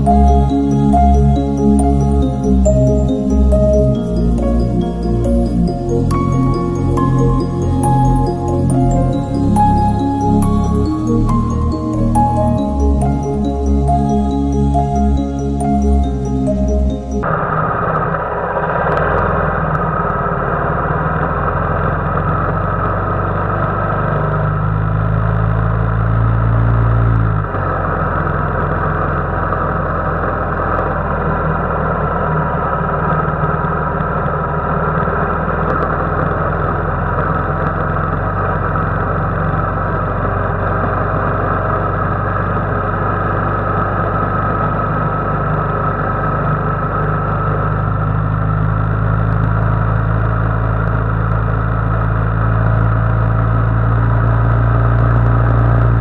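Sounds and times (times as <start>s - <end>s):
road and wind noise: 0.0s - 56.0s
motorcycle engine running: 17.2s - 56.0s.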